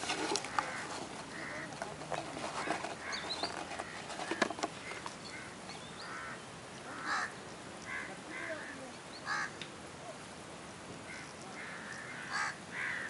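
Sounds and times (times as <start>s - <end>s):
birds calling: 0.0s - 9.7s, 11.0s - 13.0s
phone box handling clicks: 1.7s - 4.8s.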